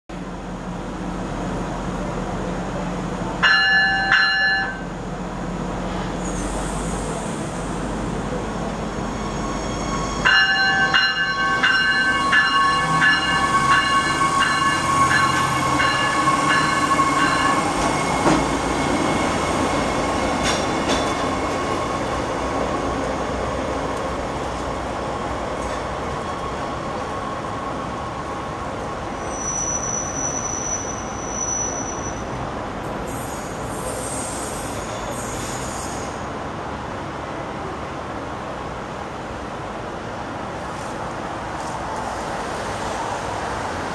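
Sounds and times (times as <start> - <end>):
train whine pulling away: 0.2 - 36.4
diesel train engine: 0.2 - 40.9
train bell ringing: 3.4 - 4.9, 9.3 - 18.0.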